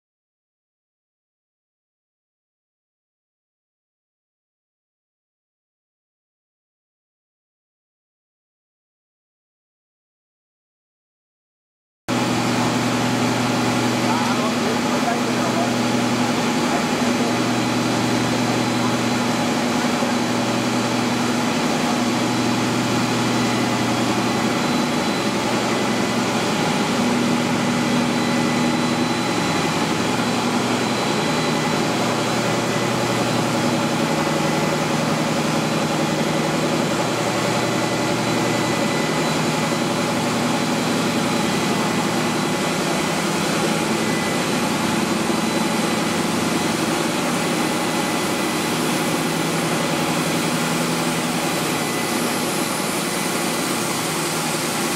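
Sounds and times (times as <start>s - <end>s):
machine drone with high whine: 12.1s - 54.9s.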